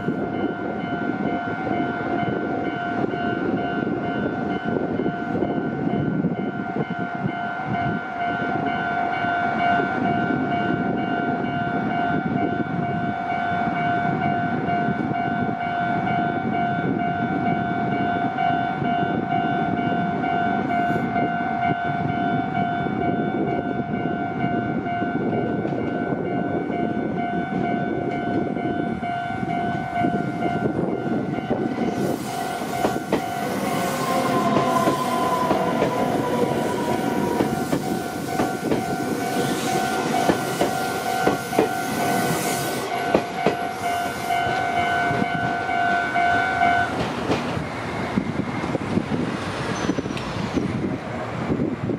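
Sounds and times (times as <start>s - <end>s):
train falling whine: 25.4s - 51.6s
train wheels clicking over joints: 30.7s - 45.4s, 46.9s - 50.6s
train hiss: 31.8s - 44.6s.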